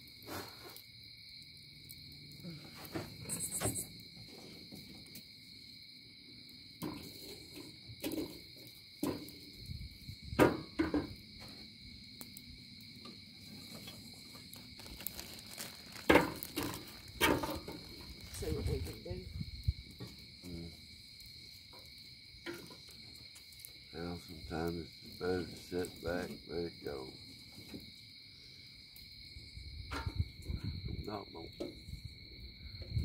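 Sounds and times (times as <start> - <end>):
crickets chirring: 0.0 - 33.0
sharp knocks and cracks: 6.8 - 9.4, 10.3 - 11.2, 13.8 - 18.2, 21.7 - 23.5.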